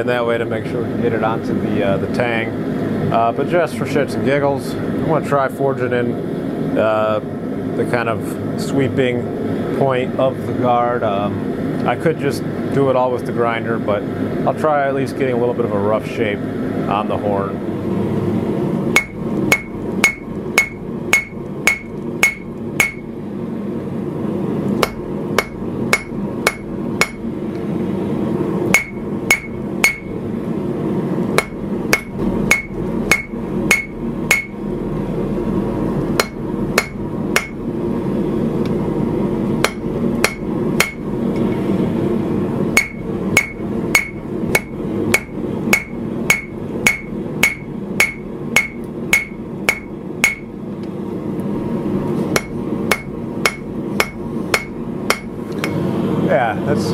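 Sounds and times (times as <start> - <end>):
hammer ringing on anvil: 19.0 - 23.0, 24.8 - 27.2, 28.7 - 30.1, 31.4 - 34.6, 36.2 - 37.6, 39.6 - 41.0, 42.8 - 50.5, 52.4 - 55.3.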